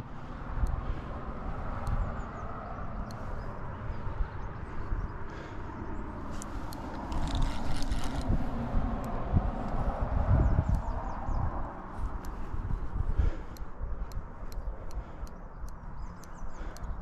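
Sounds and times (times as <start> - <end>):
wind buffeting microphone: 0.0 - 17.0
fishing reel clicks: 6.3 - 9.2.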